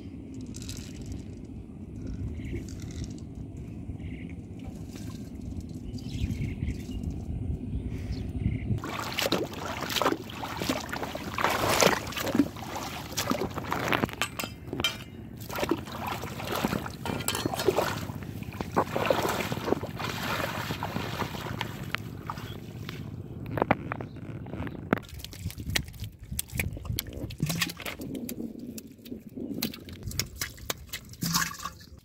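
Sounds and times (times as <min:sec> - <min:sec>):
muddy water splashing: 0:08.8 - 0:23.4, 0:25.0 - 0:32.0.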